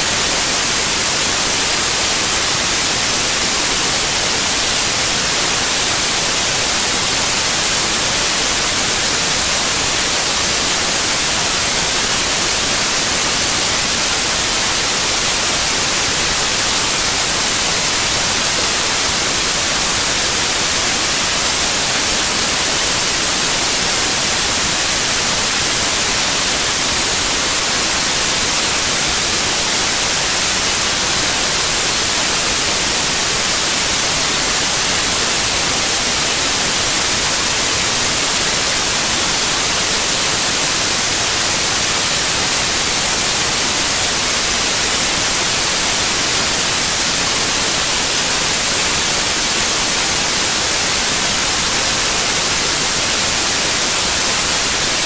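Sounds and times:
loud static hiss: 0.0s - 55.0s.

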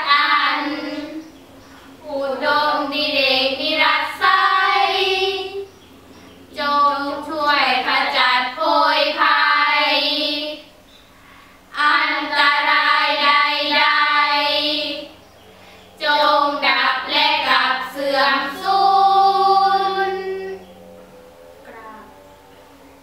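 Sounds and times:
girls chanting in unison: 0.0s - 1.3s, 2.0s - 5.7s, 6.5s - 10.7s, 11.7s - 15.2s, 16.0s - 20.7s.

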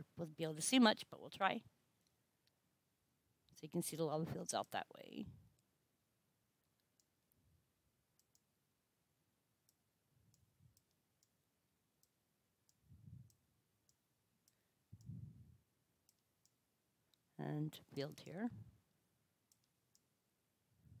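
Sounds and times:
faint computer mouse clicks: 8.2s - 8.5s.

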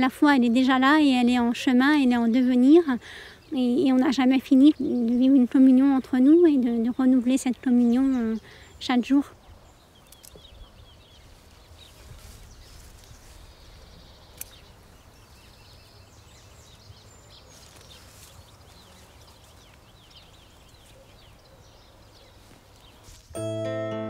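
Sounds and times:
small birds chirping: 0.0s - 23.4s
sharp click: 14.3s - 14.7s.

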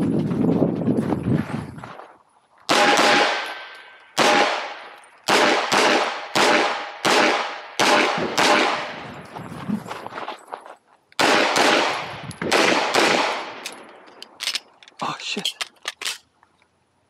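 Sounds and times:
pistol shots with echo: 2.7s - 9.0s, 11.2s - 13.6s.

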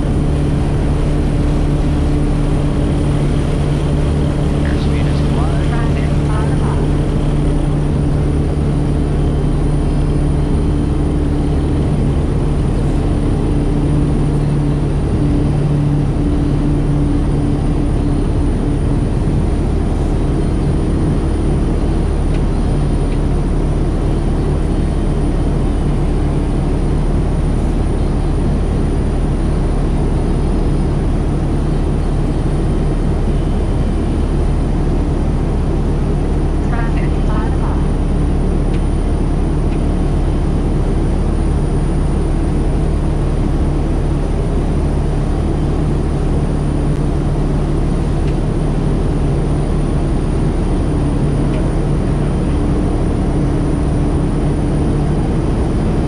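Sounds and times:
low hum: 0.0s - 56.0s
turboprop engine drone in cabin: 0.0s - 56.0s.

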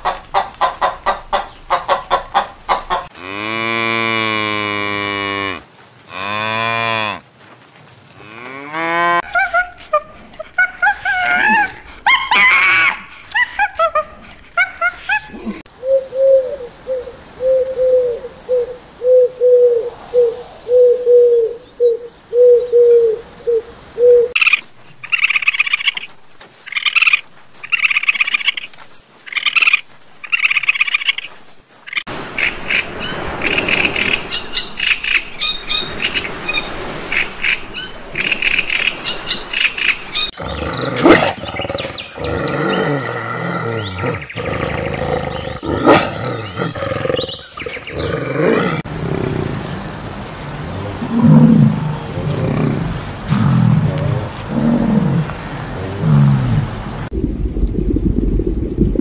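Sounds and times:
young raccoons chittering: 9.2s - 15.7s
owl hooting: 15.8s - 24.5s.

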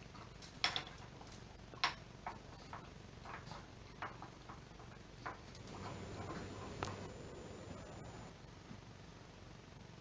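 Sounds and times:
dog claws clicking on tiles: 0.0s - 7.1s.

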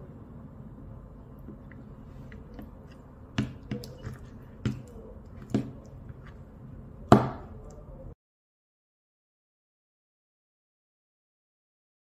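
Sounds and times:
spoon knocking plastic bowl: 3.3s - 6.4s.

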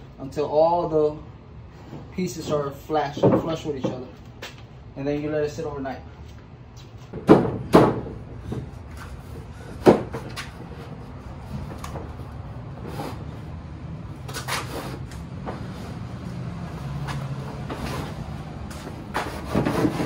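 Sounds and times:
wooden boards knocking: 7.1s - 8.7s, 9.8s - 10.5s.

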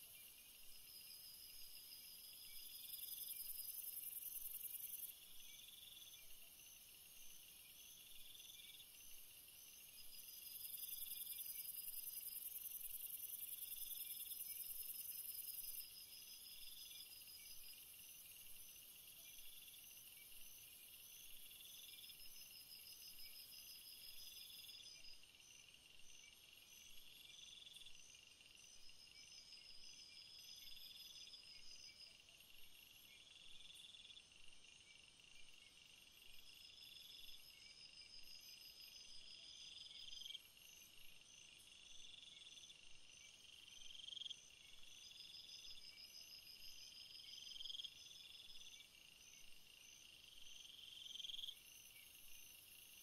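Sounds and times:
steady high insect trilling: 0.1s - 32.2s.

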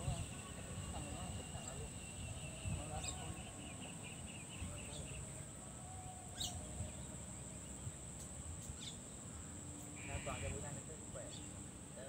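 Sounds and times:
high-pitched insect drone: 0.0s - 5.0s
bird chirps: 0.0s - 5.4s, 6.3s - 9.2s.

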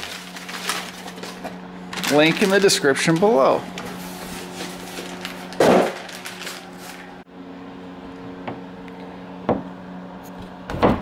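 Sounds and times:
plastic wrapping crinkling: 0.0s - 7.2s
steady low hum: 0.0s - 11.0s.

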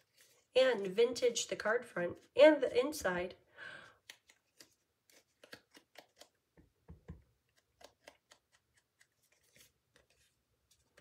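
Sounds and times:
scissors snipping cardstock: 4.0s - 6.4s, 7.4s - 10.1s.

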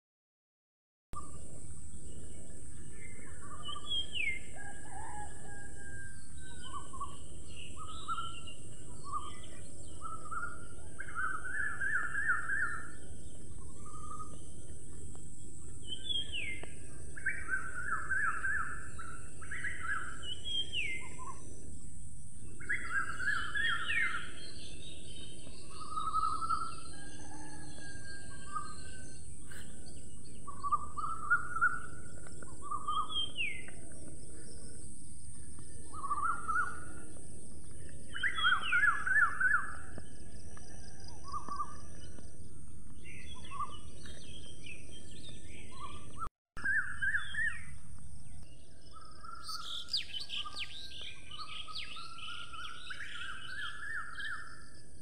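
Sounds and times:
steady high-pitched hiss: 1.2s - 40.7s
birds calling with buzzy trills: 1.2s - 55.0s.

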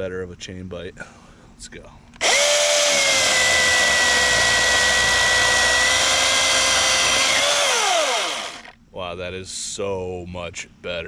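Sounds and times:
chainsaw cutting log: 2.2s - 8.8s
chainsaw motor winding down: 2.2s - 8.8s.

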